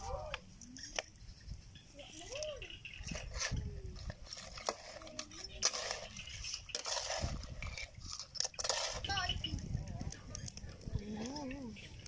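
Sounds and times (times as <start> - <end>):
metal spatula scraping wok: 4.3 - 9.4.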